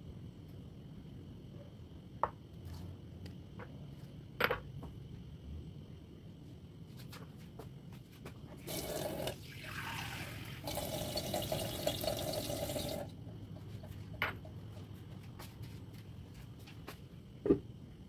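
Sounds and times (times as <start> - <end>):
water pouring into clay pot: 8.6 - 13.1.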